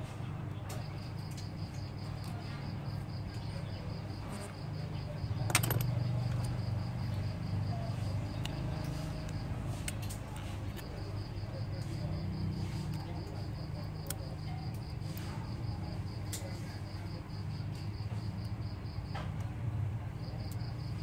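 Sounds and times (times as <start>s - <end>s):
metal tools clicking on phone: 5.4s - 5.9s
tools clattering: 5.4s - 6.1s.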